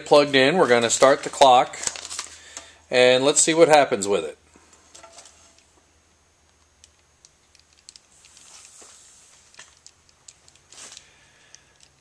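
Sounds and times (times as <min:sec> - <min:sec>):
soft hiss: 0:04.2 - 0:12.0.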